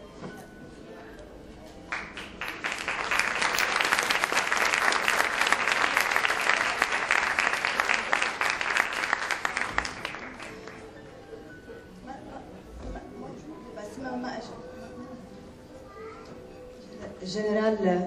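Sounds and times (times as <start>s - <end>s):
audience applauding: 1.9s - 10.8s.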